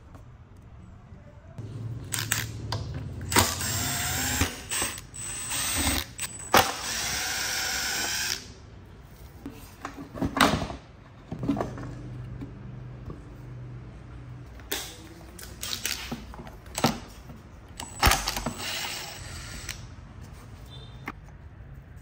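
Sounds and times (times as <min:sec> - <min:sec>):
small power tool running: 0:03.3 - 0:08.4.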